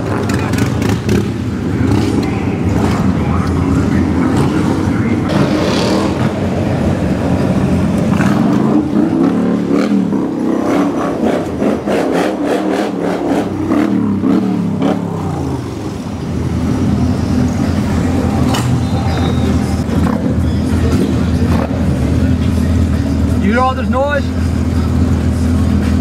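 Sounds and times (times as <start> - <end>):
road noise: 0.0 - 26.0
car engine running: 12.9 - 26.0.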